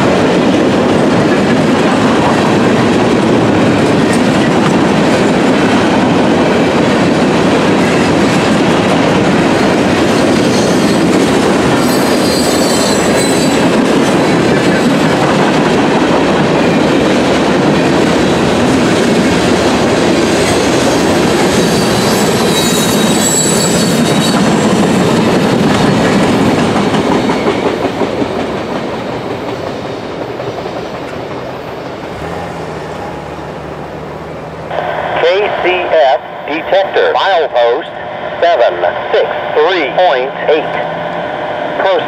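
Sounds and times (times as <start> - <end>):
train wheels clacking over rail joints: 0.0 - 34.7
train wheel squeals: 10.1 - 14.3, 20.3 - 25.2, 27.0 - 27.9.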